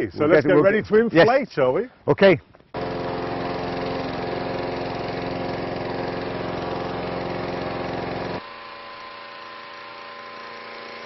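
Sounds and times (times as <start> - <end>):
engine-driven inflator fan running: 2.8 - 11.0.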